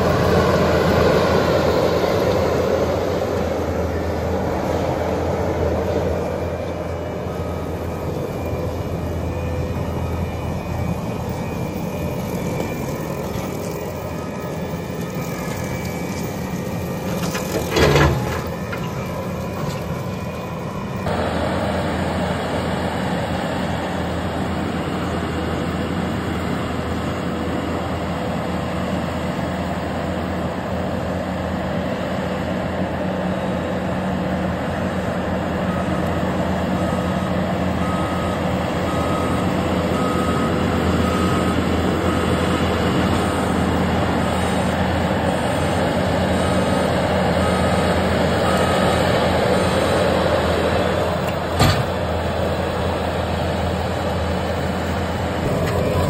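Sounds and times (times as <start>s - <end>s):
diesel engine running: 0.0s - 56.0s
reversing alarm beeps: 4.8s - 21.1s, 35.4s - 51.3s, 52.6s - 56.0s.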